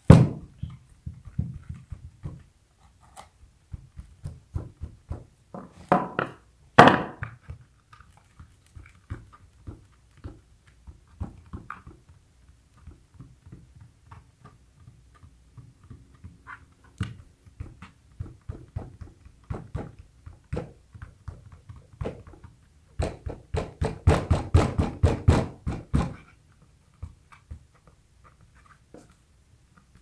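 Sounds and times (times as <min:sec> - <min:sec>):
hands patting grip tape: 0:07.2 - 0:30.0.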